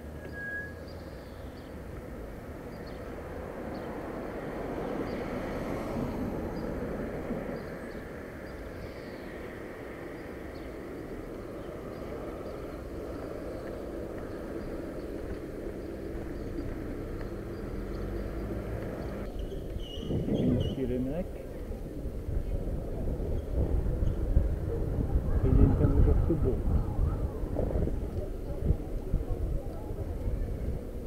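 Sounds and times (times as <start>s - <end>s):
road noise: 0.0s - 31.0s
wind rushing: 22.1s - 31.0s.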